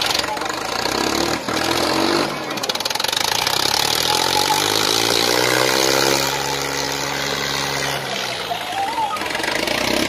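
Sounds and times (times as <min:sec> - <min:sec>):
tractor diesel engines revving: 0:00.0 - 0:10.0.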